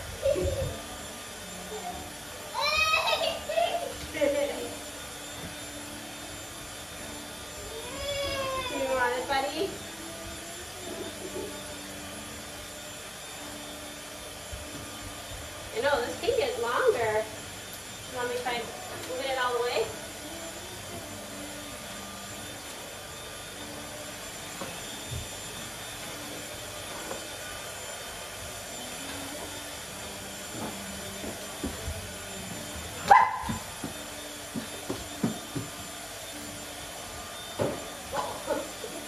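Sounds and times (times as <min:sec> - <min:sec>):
puppy barking: 0:33.1 - 0:33.6.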